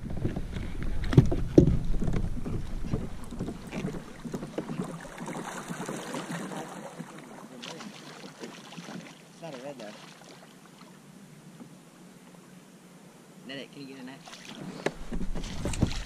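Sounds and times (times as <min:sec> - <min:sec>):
wind buffeting microphone: 0:00.0 - 0:05.4, 0:14.6 - 0:16.0
water splashing against kayak hull: 0:00.0 - 0:11.0, 0:14.1 - 0:16.0.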